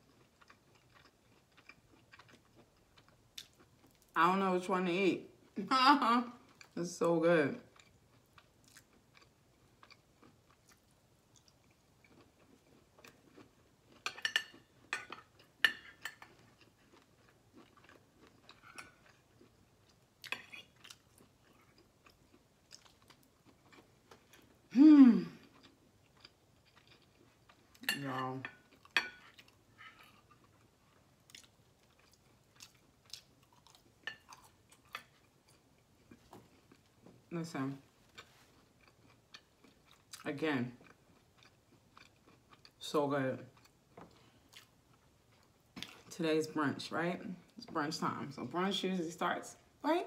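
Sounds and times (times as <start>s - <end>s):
chewing and mouth sounds: 0.0s - 4.2s, 7.6s - 37.2s, 38.0s - 42.8s, 43.5s - 46.1s
person humming mmm: 24.7s - 25.4s.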